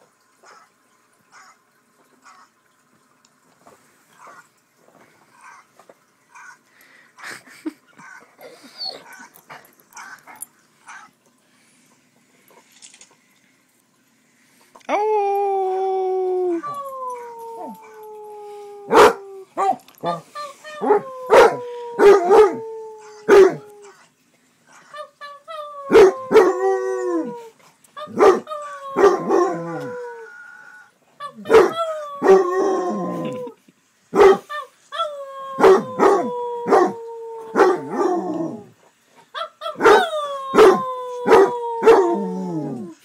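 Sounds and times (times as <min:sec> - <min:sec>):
dog howling: 0:15.2 - 0:20.2, 0:20.8 - 0:23.9, 0:25.5 - 0:27.5, 0:28.1 - 0:33.6, 0:35.0 - 0:38.7, 0:39.4 - 0:43.0
dog barking: 0:28.1 - 0:28.5, 0:34.2 - 0:34.5, 0:39.6 - 0:42.0.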